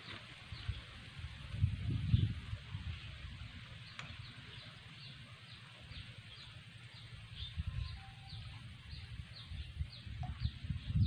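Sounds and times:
low rumbling on microphone: 0:00.5 - 0:03.6, 0:06.4 - 0:11.0.

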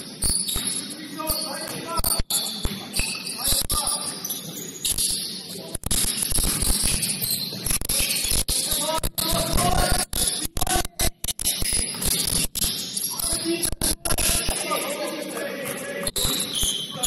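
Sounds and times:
basketball bouncing on court: 0:00.0 - 0:00.9, 0:05.9 - 0:08.5, 0:09.1 - 0:13.1
sneaker squeaks: 0:00.0 - 0:09.3, 0:11.4 - 0:15.0, 0:15.6 - 0:17.0.

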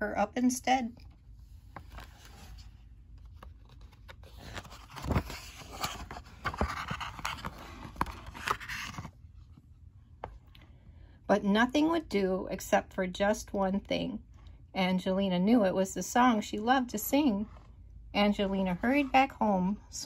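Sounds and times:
paper page rustling: 0:01.6 - 0:09.2.

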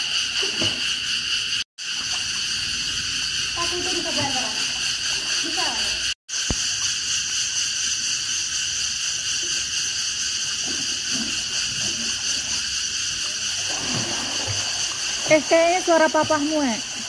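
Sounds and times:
insects droning: 0:00.0 - 0:17.0
faint water splashing: 0:13.2 - 0:17.0.

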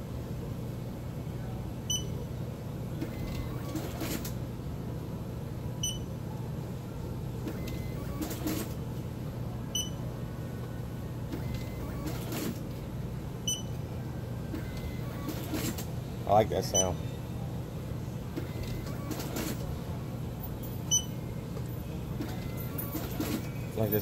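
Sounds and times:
steady low hum: 0:00.0 - 0:24.0
short high beeps: 0:01.9 - 0:02.1, 0:09.8 - 0:10.0.

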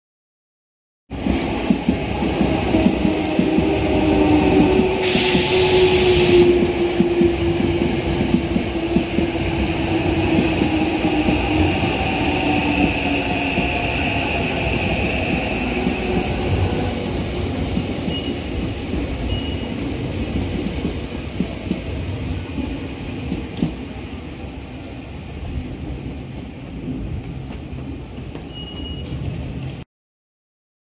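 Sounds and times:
train wheels rumbling on rail: 0:01.1 - 0:29.8.

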